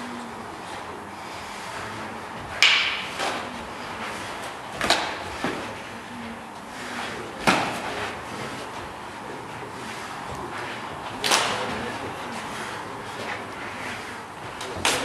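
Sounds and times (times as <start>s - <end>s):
strikes smacking bodies and padding: 4.7s - 5.7s, 7.4s - 8.1s.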